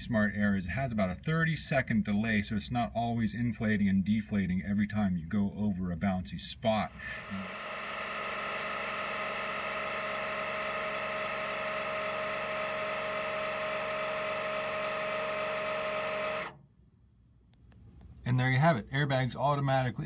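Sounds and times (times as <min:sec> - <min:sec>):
air compressor whining: 0:06.8 - 0:16.6.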